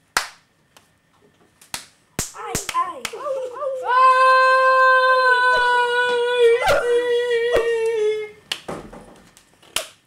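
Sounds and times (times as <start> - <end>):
short sharp slaps: 0.2 - 0.9, 1.6 - 3.2.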